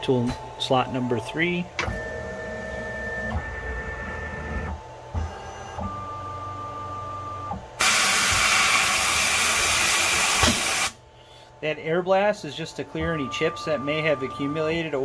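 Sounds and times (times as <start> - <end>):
air blast hissing: 7.8 - 11.0.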